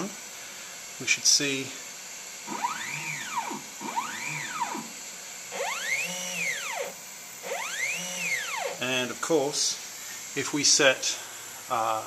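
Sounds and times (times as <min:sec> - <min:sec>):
stepper motor whine: 0:02.3 - 0:09.3.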